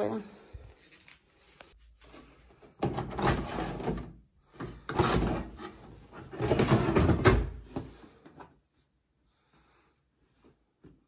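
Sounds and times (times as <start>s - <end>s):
plastic tank sliding and rattling: 2.7s - 8.1s.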